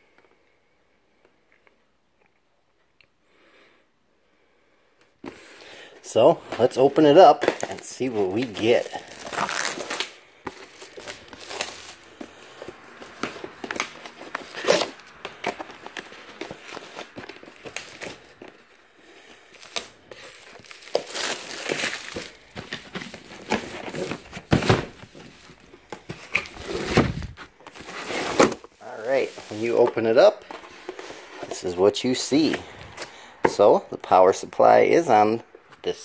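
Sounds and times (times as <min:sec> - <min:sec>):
plastic wrap crinkling: 0:06.1 - 0:31.3
packing tape ripping off cardboard: 0:07.3 - 0:28.8.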